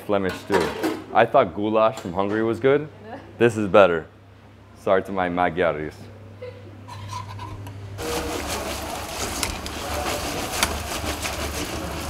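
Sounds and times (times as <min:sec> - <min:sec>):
fries sizzling in hot oil: 0:08.0 - 0:12.0.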